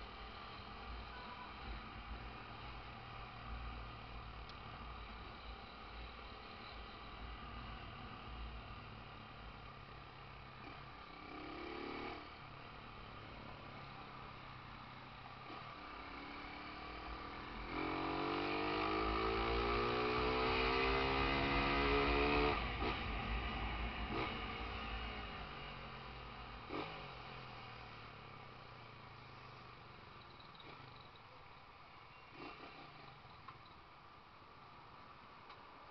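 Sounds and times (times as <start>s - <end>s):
motorcycle engine revving: 9.9s - 31.2s, 32.3s - 33.8s.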